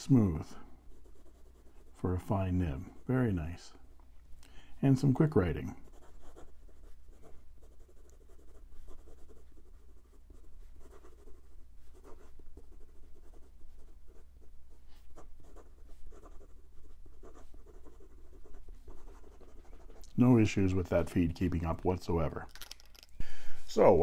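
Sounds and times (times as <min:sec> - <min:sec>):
fountain pen writing on paper: 0:05.8 - 0:14.3, 0:15.1 - 0:20.0.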